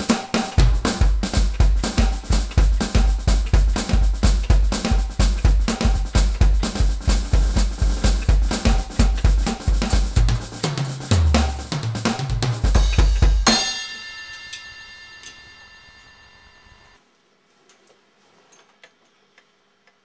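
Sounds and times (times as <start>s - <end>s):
electronic drum kit: 0.0s - 15.3s
cymbal crash ringing: 0.0s - 17.0s.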